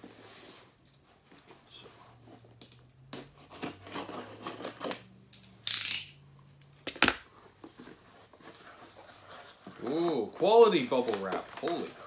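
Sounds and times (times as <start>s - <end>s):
package rustles and clicks: 6.9s - 12.0s.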